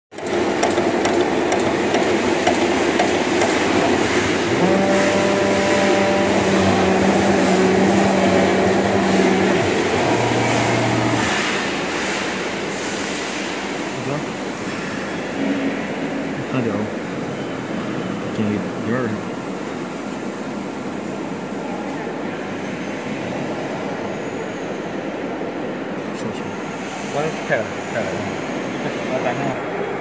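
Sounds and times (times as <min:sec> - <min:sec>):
loud rush of machine noise: 0:00.1 - 0:14.7
humming motor tones: 0:00.2 - 0:11.6.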